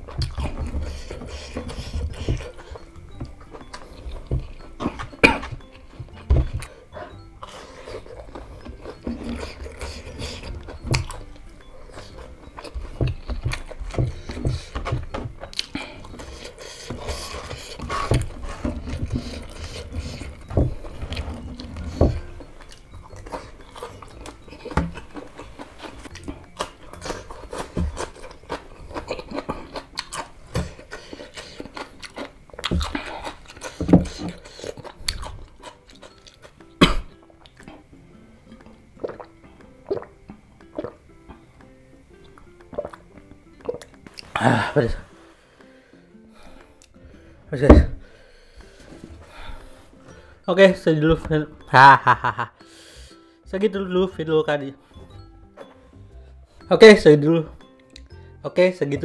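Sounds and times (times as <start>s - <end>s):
chewing and crunching food: 0.0s - 41.5s, 42.2s - 45.6s.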